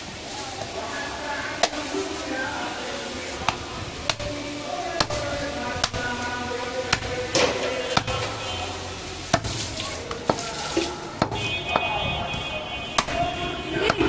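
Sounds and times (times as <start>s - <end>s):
cleaver chopping meat and bone: 3.5s - 4.4s, 5.0s - 8.4s, 9.3s - 12.0s, 13.0s - 14.0s.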